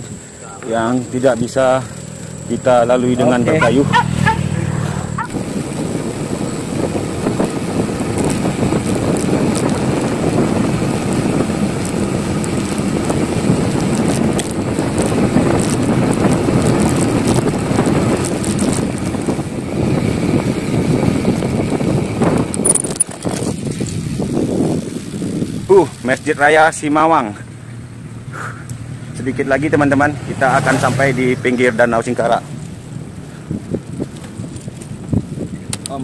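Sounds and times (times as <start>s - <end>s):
bicycle tyres rumbling: 0.0s - 36.0s
wind over microphone: 1.4s - 29.3s, 30.0s - 36.0s.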